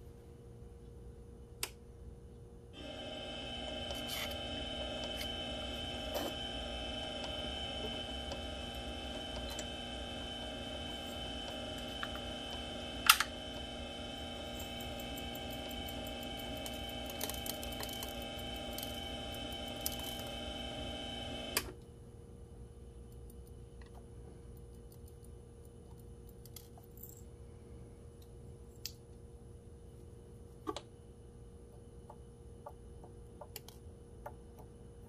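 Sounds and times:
lathe motor running: 0:02.8 - 0:21.6.

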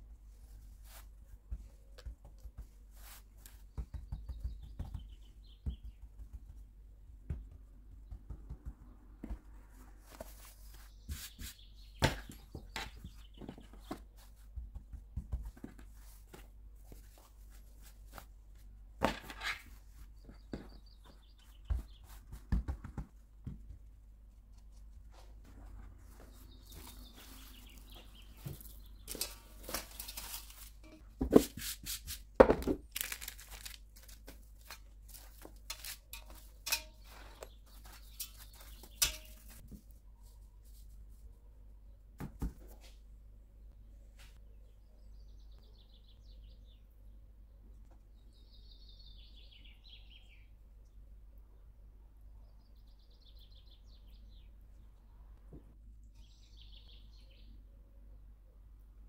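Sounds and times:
hands patting and rubbing dough: 0:00.3 - 0:18.8, 0:19.7 - 0:41.3.

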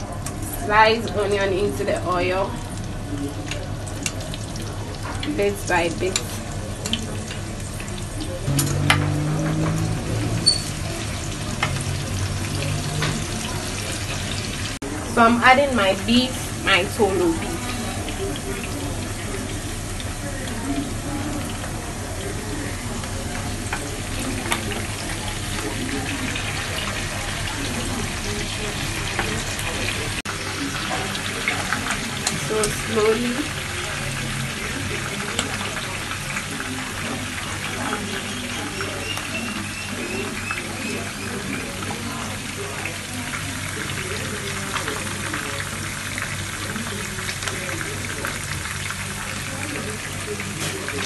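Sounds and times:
beef sizzling in a frying pan: 0:00.0 - 0:51.0
low hum: 0:08.4 - 0:12.5.

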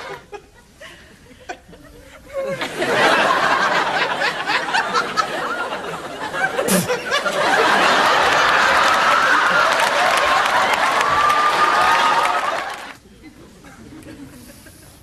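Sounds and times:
audience laughing: 0:00.0 - 0:15.0
audience applause: 0:03.0 - 0:13.0.

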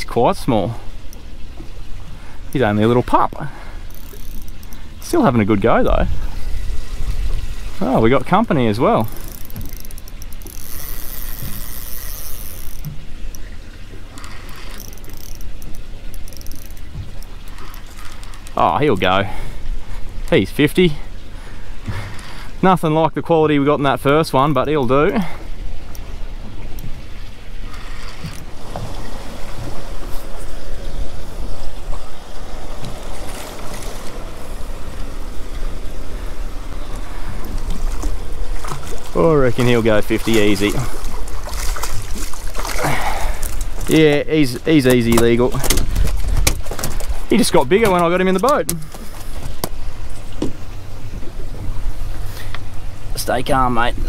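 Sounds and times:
wind and sea rushing: 0:00.0 - 0:54.0
fishing reel drag whine: 0:03.8 - 0:05.1, 0:09.0 - 0:18.5, 0:27.6 - 0:39.0
wind rumble on microphone: 0:05.6 - 0:09.8, 0:43.0 - 0:47.9.

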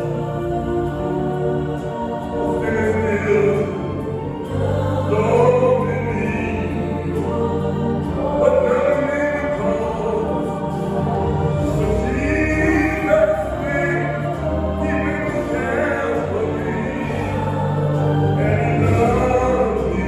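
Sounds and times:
low sustained backing notes: 0:00.0 - 0:20.0
man singing into microphone: 0:02.5 - 0:04.0, 0:05.0 - 0:07.0, 0:08.2 - 0:10.7, 0:11.7 - 0:17.6, 0:18.3 - 0:20.0.

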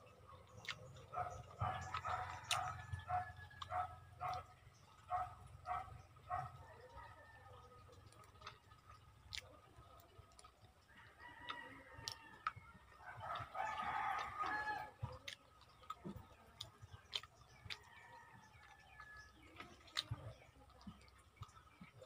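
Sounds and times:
person chewing food: 0:00.0 - 0:22.0
distant rooster crowing: 0:01.1 - 0:04.4, 0:11.0 - 0:15.0.

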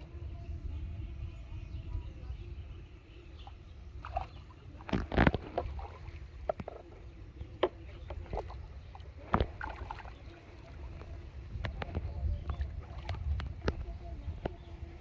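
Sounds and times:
water splashing and sloshing: 0:03.4 - 0:15.0.

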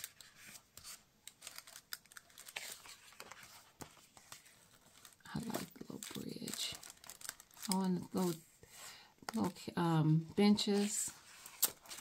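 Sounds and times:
sticker sheets crinkling: 0:00.0 - 0:08.4, 0:10.4 - 0:12.0.

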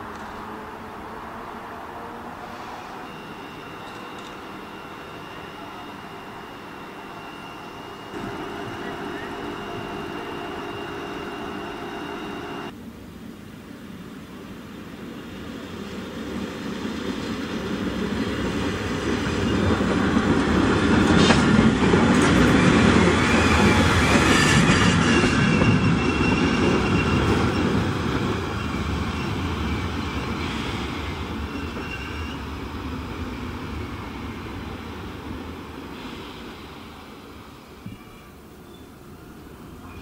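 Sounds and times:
faint high wheel squeal: 0:02.4 - 0:12.7, 0:22.6 - 0:34.3.

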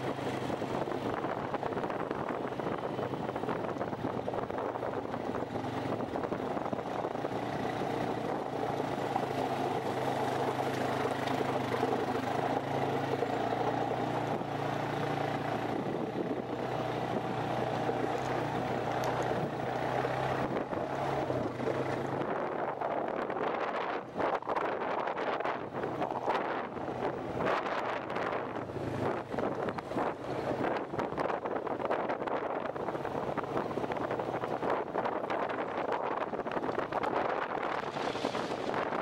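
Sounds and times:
quad engine running: 0:00.0 - 0:39.0.

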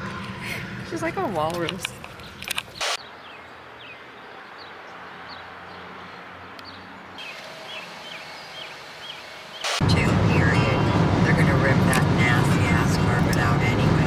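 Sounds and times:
small birds chirping: 0:00.8 - 0:09.8
low background rumble: 0:09.8 - 0:14.0.

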